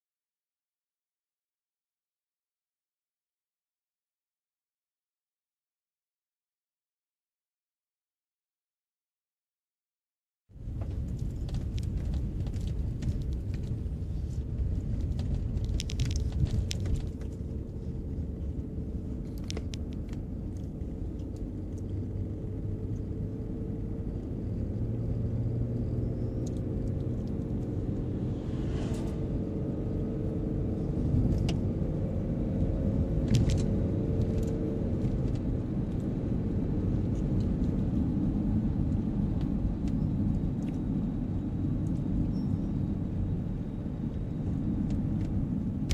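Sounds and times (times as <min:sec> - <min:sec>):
car engine and tyres rumbling: 0:10.5 - 0:45.9
passing truck whoosh: 0:27.4 - 0:31.4.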